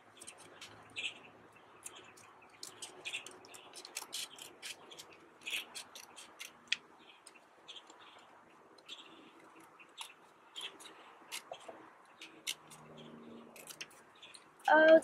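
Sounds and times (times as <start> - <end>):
scissors snipping paper: 1.8 - 6.8.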